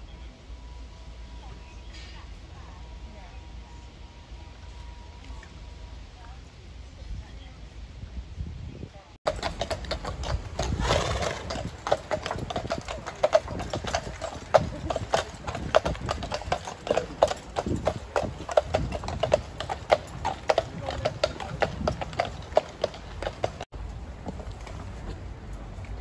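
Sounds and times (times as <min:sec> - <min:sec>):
horse hooves clip-clopping on tarmac: 0:09.3 - 0:26.0.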